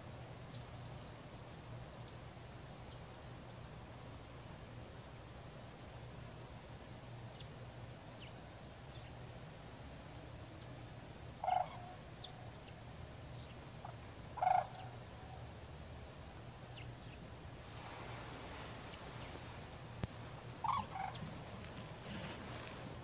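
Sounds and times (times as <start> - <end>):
cranes calling: 11.4 - 12.4, 13.8 - 15.4, 20.5 - 23.0.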